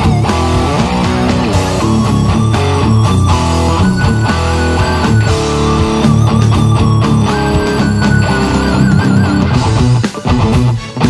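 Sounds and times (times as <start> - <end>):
distorted electric guitar: 0.9 - 9.7.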